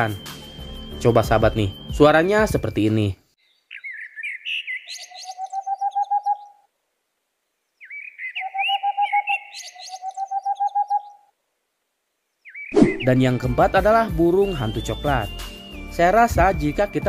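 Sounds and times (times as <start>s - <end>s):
high chirping gliding calls: 0.0s - 6.7s, 7.8s - 11.3s, 12.4s - 17.0s
owl hooting in rapid runs: 3.7s - 6.6s, 7.8s - 11.3s.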